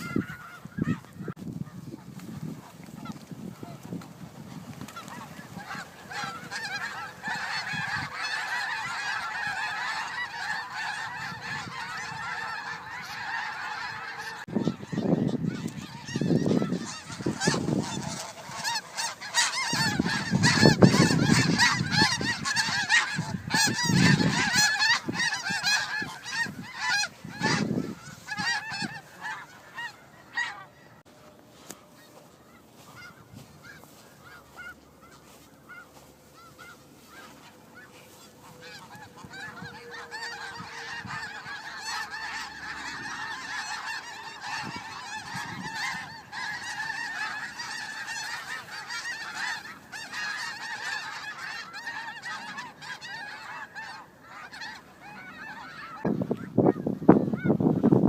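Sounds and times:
snow geese honking: 0.0 - 58.0
rushing gusts of wind: 14.4 - 18.6, 19.6 - 29.0, 56.0 - 58.0.

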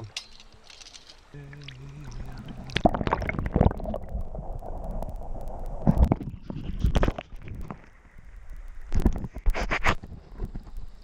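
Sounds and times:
stream water splashing: 0.0 - 4.6.

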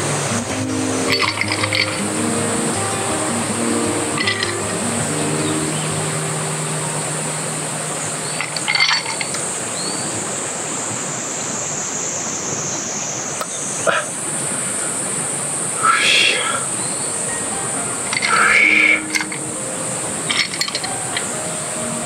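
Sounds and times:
background music: 0.0 - 9.2, 17.3 - 22.0
cicadas chorus: 0.0 - 22.0.

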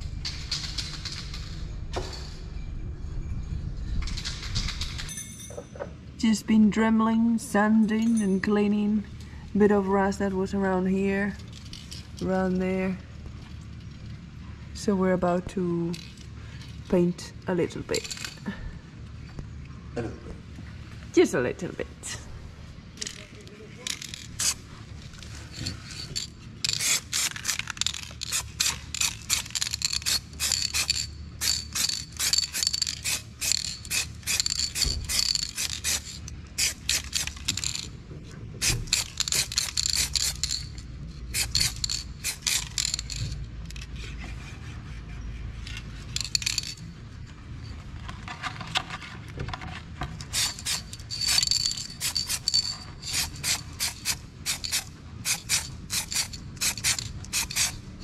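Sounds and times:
low steady rumble: 0.0 - 58.0
spray paint can hissing: 24.4 - 24.6, 26.7 - 37.8, 38.6 - 40.7, 41.3 - 43.1, 50.3 - 57.8.

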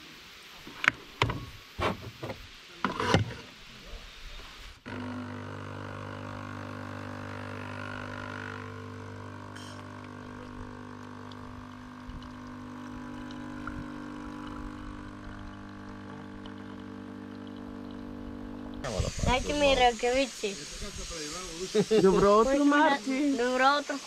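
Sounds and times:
coffee machine pump humming: 4.8 - 24.0.

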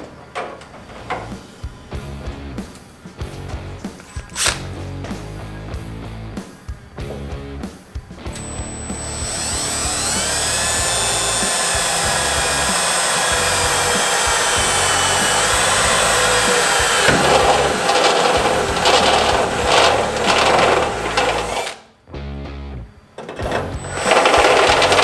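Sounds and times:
drill drilling through steel: 8.3 - 21.8, 23.4 - 25.0.

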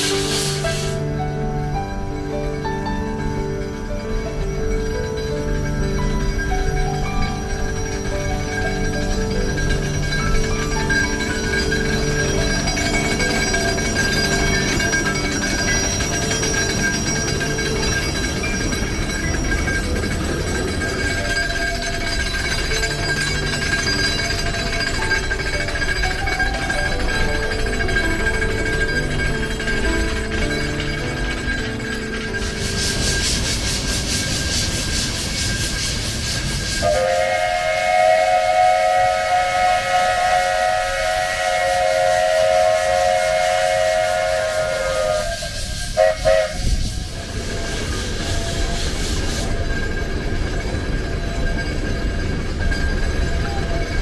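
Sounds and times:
steam whistle: 0.0 - 1.1, 35.7 - 49.6
steam hissing: 0.0 - 1.4, 30.6 - 54.0
steam locomotive rumbling: 0.0 - 54.0.

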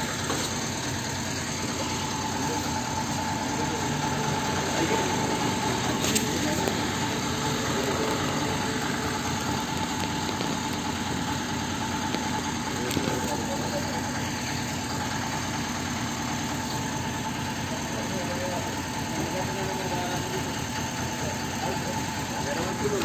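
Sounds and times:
higher-pitched hum: 0.0 - 15.1
vehicle engine idling: 0.0 - 23.0.

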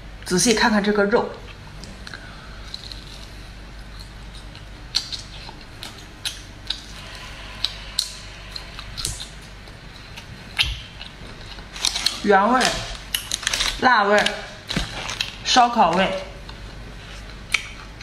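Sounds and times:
faint low hum: 0.0 - 18.0
crunchy chewing: 1.5 - 12.2, 12.8 - 15.5.

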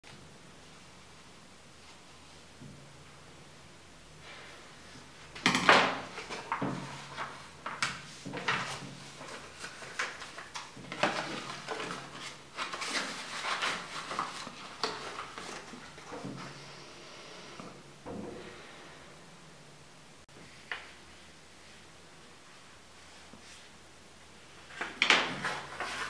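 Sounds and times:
paper crinkling and rustling: 5.3 - 16.6, 24.5 - 26.0.

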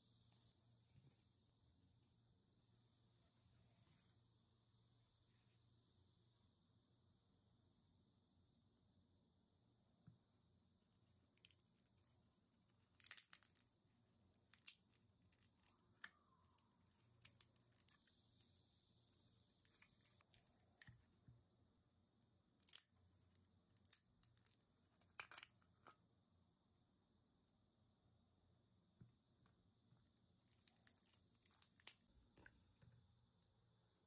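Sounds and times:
resin crackling as peeled from plastic: 11.4 - 12.2, 12.8 - 18.4, 19.4 - 21.0, 22.6 - 26.0, 30.4 - 32.5.

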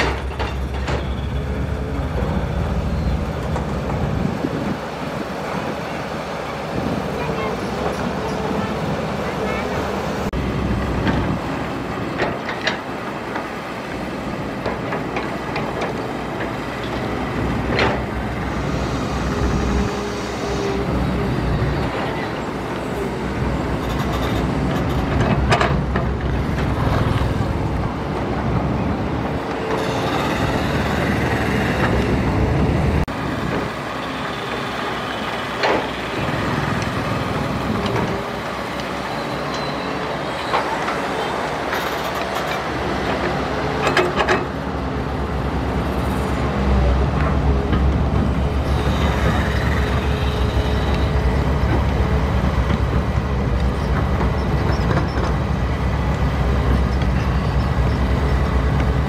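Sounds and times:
excavator diesel engine rumbling: 0.0 - 59.0.

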